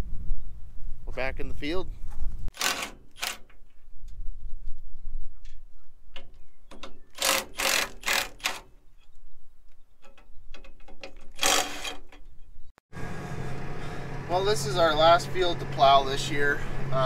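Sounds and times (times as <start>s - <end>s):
wind rumble on microphone: 0.0s - 2.5s, 3.6s - 6.7s.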